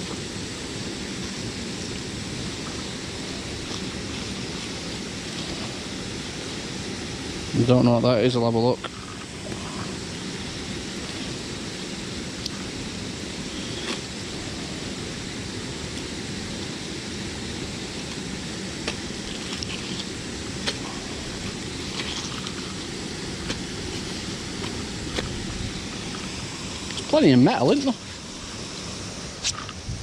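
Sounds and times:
steady rushing noise: 0.0 - 30.0.

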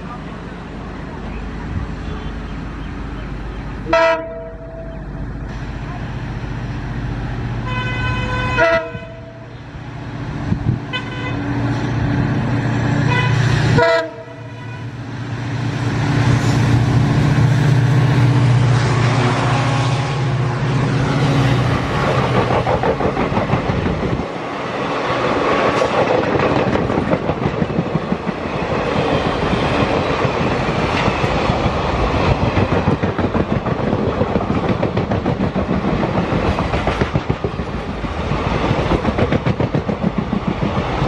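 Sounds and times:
diesel locomotive engine drone: 0.0 - 41.0
locomotive horn blasts: 3.8 - 5.0, 7.6 - 9.5, 10.9 - 11.5, 13.1 - 15.0
rush of wheels and air: 9.9 - 13.8, 15.2 - 41.0
train wheels clickety-clack: 21.3 - 41.0.

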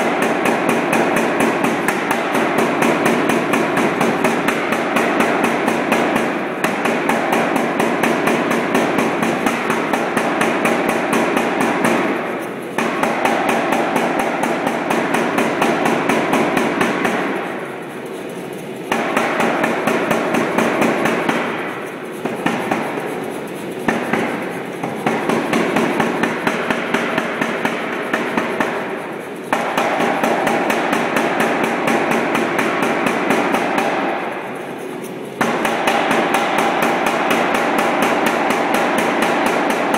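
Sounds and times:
power hammer striking hot steel: 0.0 - 17.6, 35.4 - 39.9.

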